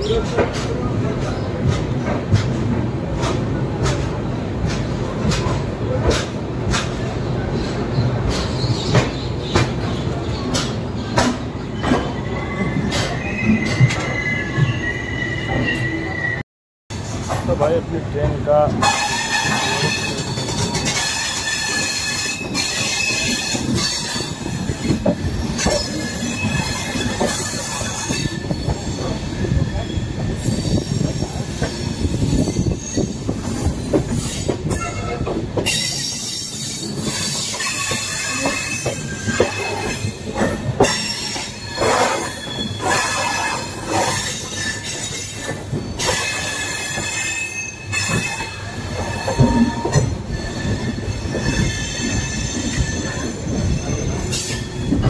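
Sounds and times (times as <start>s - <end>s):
moving train rumble: 0.0s - 55.0s
wheel squeal on rails: 11.8s - 16.4s, 18.8s - 55.0s.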